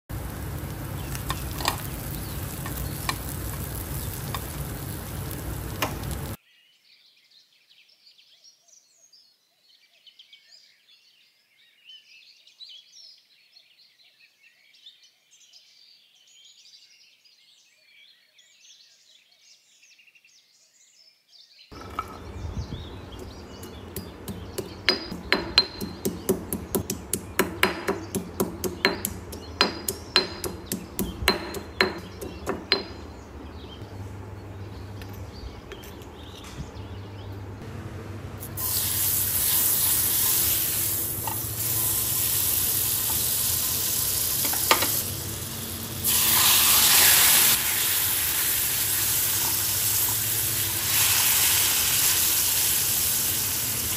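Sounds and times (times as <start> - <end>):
food frying hiss: 0.1 - 6.4, 21.8 - 33.1, 37.6 - 53.9.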